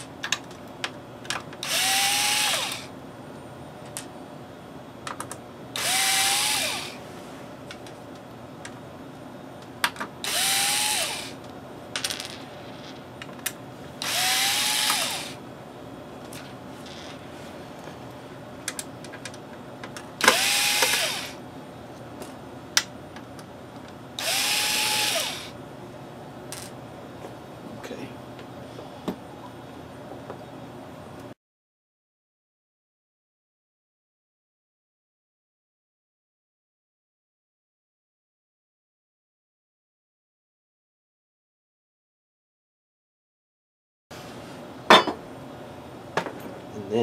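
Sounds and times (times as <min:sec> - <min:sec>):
electric screwdriver whining: 0:01.6 - 0:02.9, 0:05.8 - 0:07.0, 0:10.2 - 0:11.4, 0:14.0 - 0:15.4, 0:20.2 - 0:21.4, 0:24.2 - 0:25.6.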